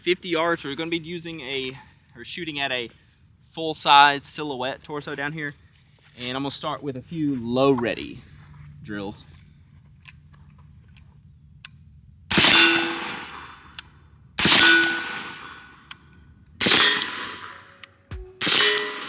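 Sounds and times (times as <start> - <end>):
metallic ring of steel target: 12.3 - 13.7, 14.4 - 19.0
suppressed rifle shots: 12.3 - 17.8, 18.4 - 19.0.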